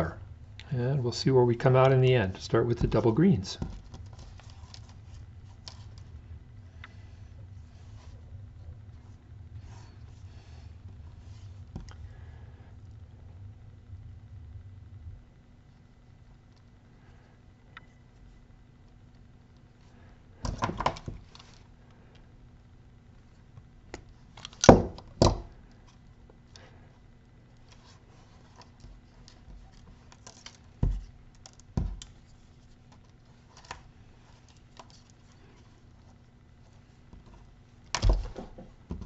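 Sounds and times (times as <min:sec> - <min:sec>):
small clicks of wires and pliers: 0:31.3 - 0:32.2.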